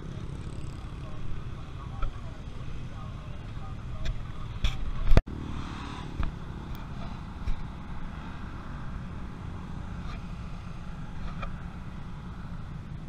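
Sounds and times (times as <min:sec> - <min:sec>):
distant vehicle engines hum: 0:00.0 - 0:13.0.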